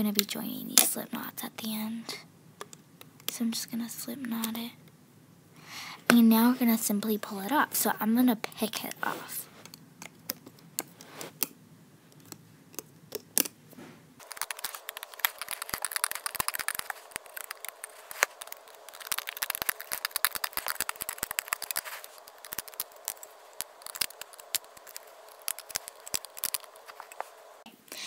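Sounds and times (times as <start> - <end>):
rubber bands clicking and snapping: 9.6 - 11.6, 12.2 - 13.6, 14.2 - 27.3.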